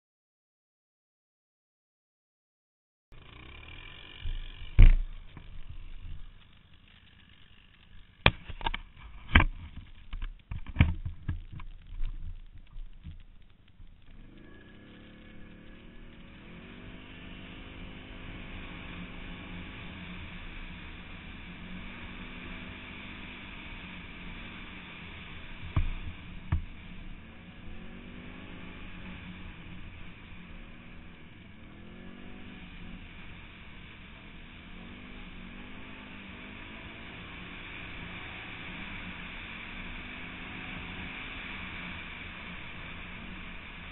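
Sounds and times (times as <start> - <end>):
quad bike engine: 3.1 - 43.9
quad bike knocking over ruts: 3.2 - 16.2, 25.5 - 27.0.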